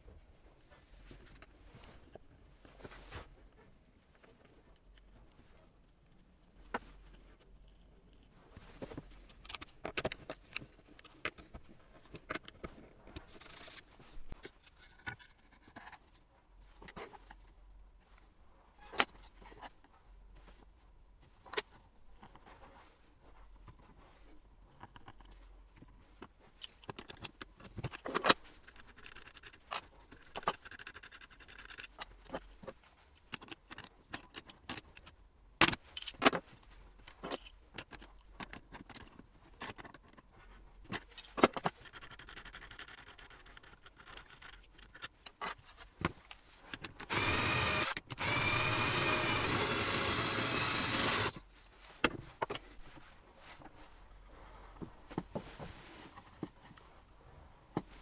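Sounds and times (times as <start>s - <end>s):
cordless drill running: 47.1s - 51.4s.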